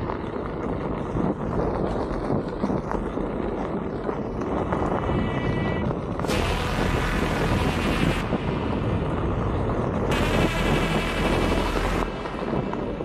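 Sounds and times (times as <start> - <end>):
electric board rolling over dirt: 0.0 - 13.0
wind buffeting microphone: 0.0 - 13.0
motor high whine: 5.3 - 13.0.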